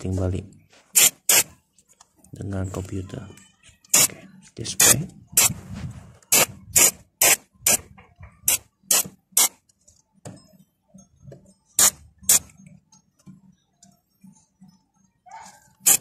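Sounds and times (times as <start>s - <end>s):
aerosol can spraying: 0.9s - 1.5s.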